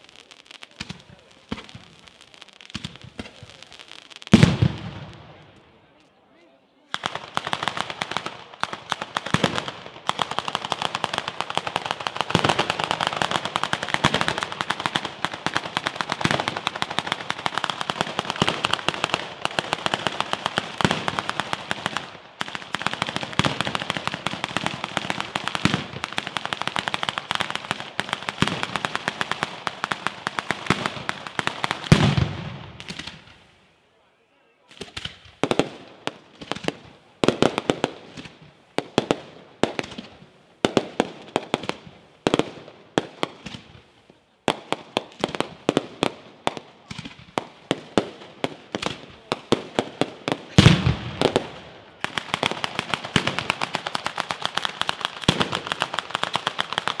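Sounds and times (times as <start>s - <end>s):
firecrackers banging rapidly: 7.0s - 33.4s, 46.8s - 57.0s.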